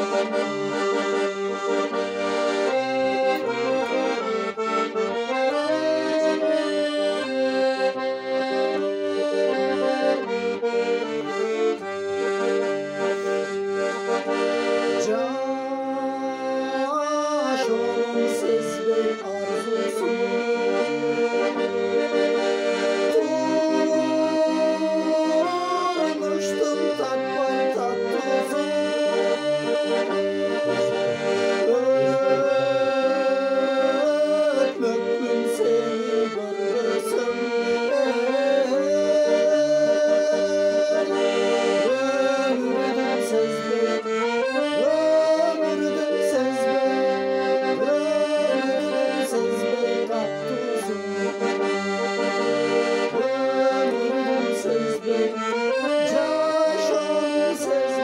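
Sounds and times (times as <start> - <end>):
piano accordion playing folk tune: 0.0 - 58.0
man singing: 5.2 - 7.9, 11.1 - 11.9, 14.5 - 21.6, 22.8 - 52.3, 53.1 - 58.0.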